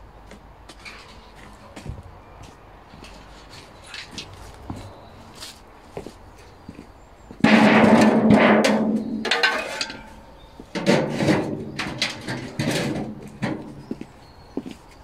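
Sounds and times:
metal bin clanging and rattling: 7.4s - 13.9s.

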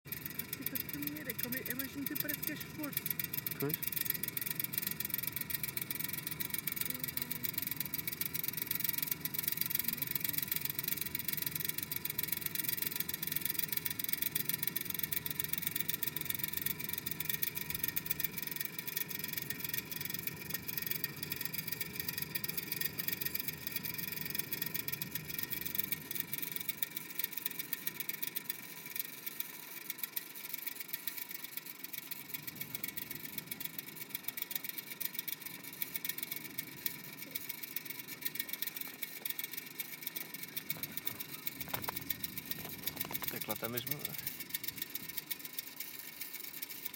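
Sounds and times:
guy cables humming: 0.1s - 46.9s.

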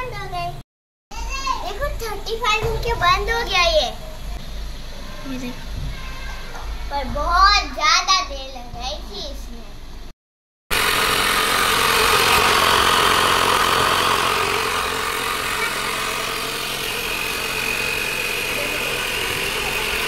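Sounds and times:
tyre inflator running: 10.7s - 20.0s
steady high tone: 11.3s - 20.0s.

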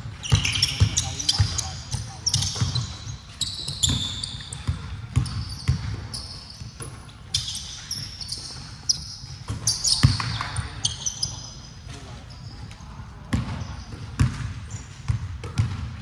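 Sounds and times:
sneakers squeaking on floor: 0.0s - 16.0s
basketballs thudding on hardwood: 15.1s - 15.9s.

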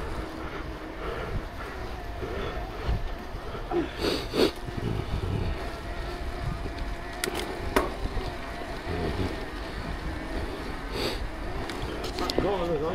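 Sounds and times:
bike tyres rumbling on dirt: 0.0s - 12.9s
wind on microphone: 4.3s - 12.2s
sharp clicks or rattles: 6.7s - 8.0s.

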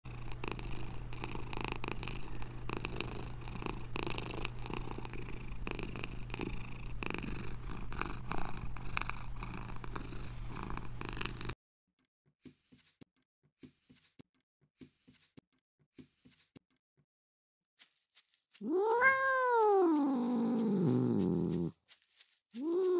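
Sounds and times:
cat purring: 0.1s - 11.6s, 18.6s - 21.8s.

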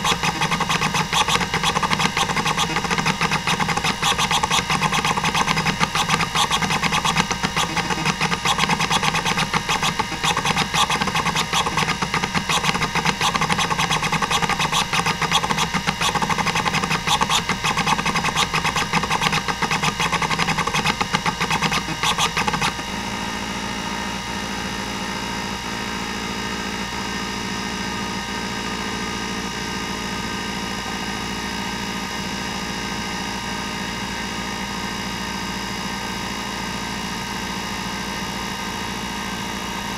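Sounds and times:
hard drive head chatter: 0.0s - 23.0s
spindle whirring: 0.0s - 23.4s.

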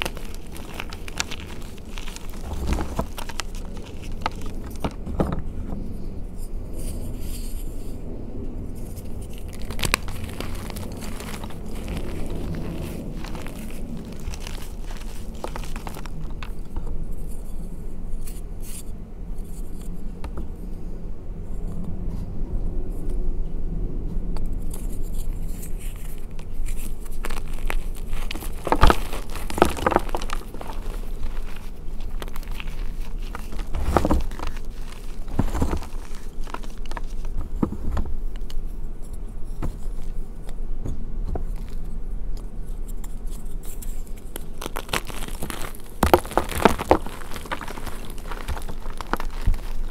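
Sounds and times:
chalk crunching and crackling: 0.0s - 5.3s, 8.7s - 18.8s, 24.6s - 40.6s, 41.4s - 49.9s.

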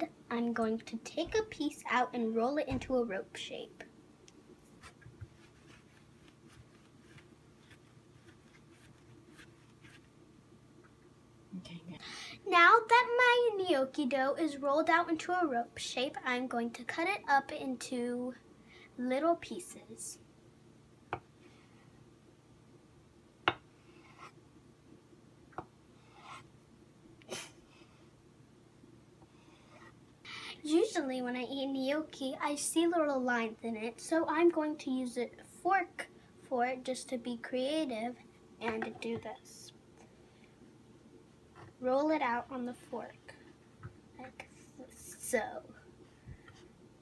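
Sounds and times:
low steady hum: 0.0s - 47.0s
palms rolling dough: 4.7s - 10.2s, 23.4s - 24.4s, 25.6s - 26.6s.

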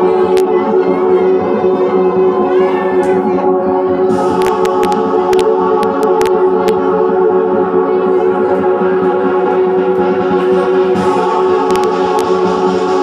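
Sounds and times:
choir-like singing music: 0.0s - 13.0s
sharp clicks: 4.4s - 6.8s.

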